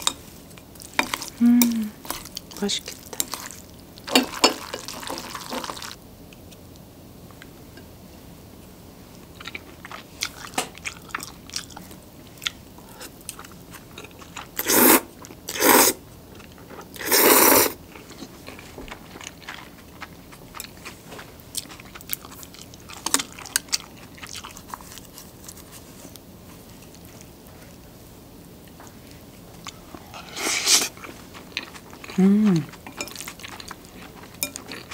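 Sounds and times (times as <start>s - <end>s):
slurping noodles: 14.6s - 16.0s, 17.0s - 17.8s
close chewing with wet clicks: 31.0s - 34.9s.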